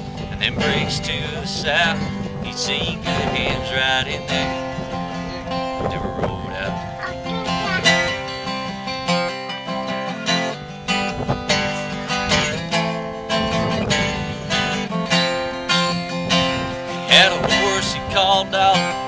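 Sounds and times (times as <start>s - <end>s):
acoustic guitar strumming chords: 0.0s - 19.0s.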